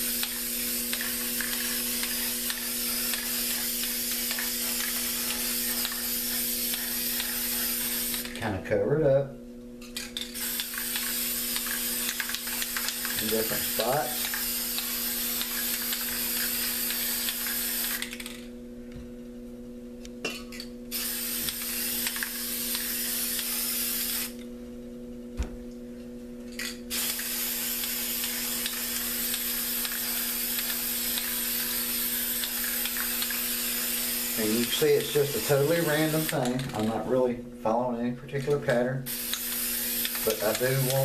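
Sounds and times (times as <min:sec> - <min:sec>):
spray paint can hissing: 0:00.0 - 0:08.4, 0:10.3 - 0:18.4, 0:20.9 - 0:24.4, 0:26.9 - 0:36.9, 0:39.1 - 0:41.0
spray can clicks: 0:00.1 - 0:08.4, 0:10.4 - 0:18.4, 0:21.0 - 0:24.4, 0:26.9 - 0:35.1, 0:35.9 - 0:36.9, 0:39.1 - 0:41.0.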